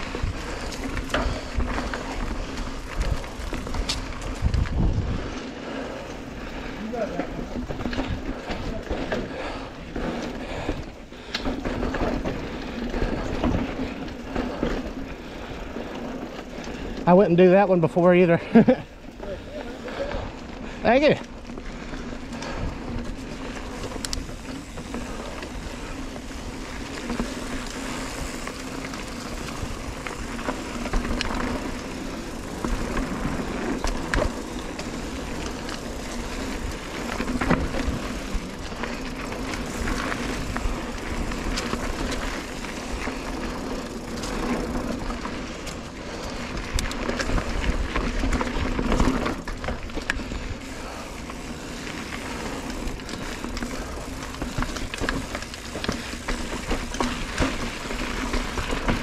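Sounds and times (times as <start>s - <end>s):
wind rumbling on microphone: 0.0s - 5.9s
tyres rolling on dirt: 0.0s - 59.0s.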